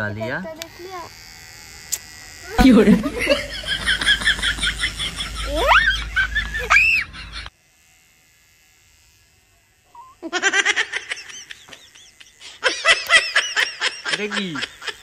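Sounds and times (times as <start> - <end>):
people laughing: 2.6 - 7.5, 10.3 - 15.0.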